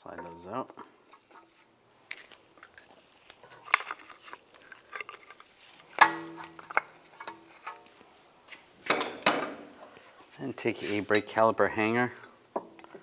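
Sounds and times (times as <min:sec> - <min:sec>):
metal scrapes and clicks: 0:02.6 - 0:07.9.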